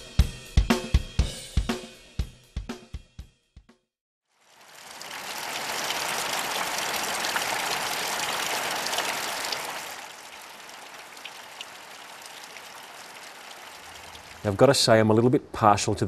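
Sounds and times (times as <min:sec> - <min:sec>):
steady rain falling: 0:04.3 - 0:15.2
water dripping off roof edge: 0:04.4 - 0:14.7.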